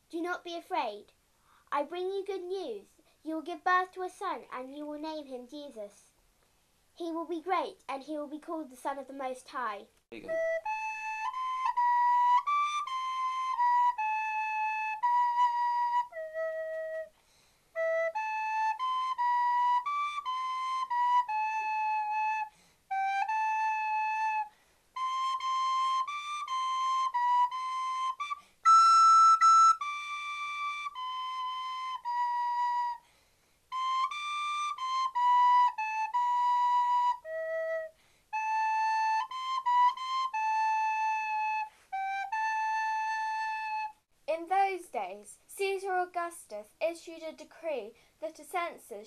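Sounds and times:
breaths between phrases: 1.3s - 1.8s, 47.8s - 48.3s
solo flute melody: 10.1s - 44.1s.

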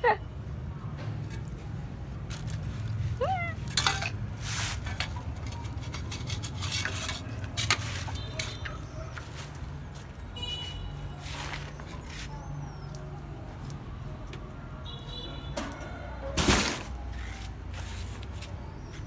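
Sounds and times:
light knocks clinks and scrapes: 3.6s - 9.6s.

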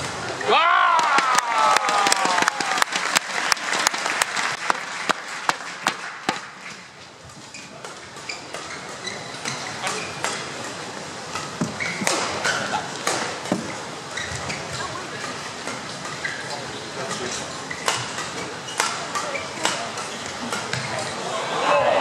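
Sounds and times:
arena crowd hum: 0.0s - 7.0s, 10.0s - 22.0s
rackets hitting shuttlecock: 5.4s - 6.7s, 11.3s - 13.7s, 17.1s - 21.0s.

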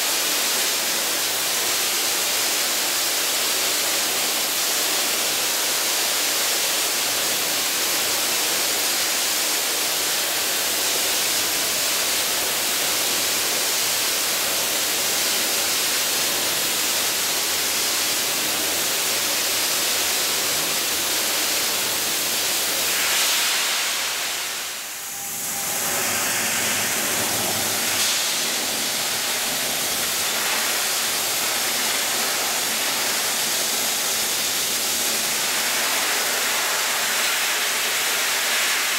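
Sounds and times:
media blaster hissing: 7.8s - 37.0s.

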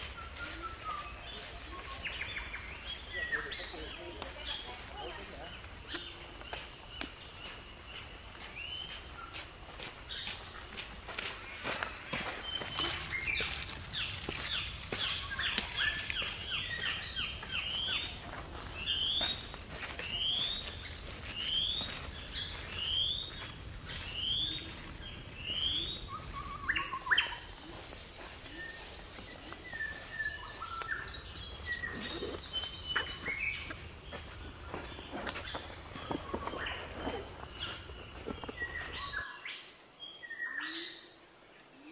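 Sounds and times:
bird chirps: 0.0s - 9.5s, 18.8s - 39.4s
other bird calls: 25.6s - 33.8s.

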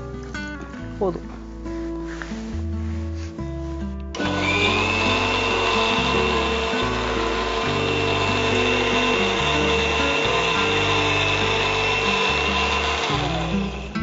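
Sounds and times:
mixer grinder motor whine: 4.2s - 14.0s.

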